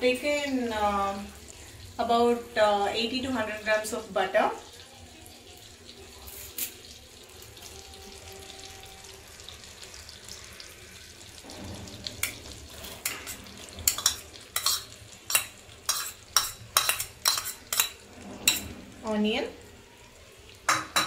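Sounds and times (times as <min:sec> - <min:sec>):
butter sizzling in a frying pan: 0:00.0 - 0:21.0
metal spoon scraping a pan: 0:11.4 - 0:19.2.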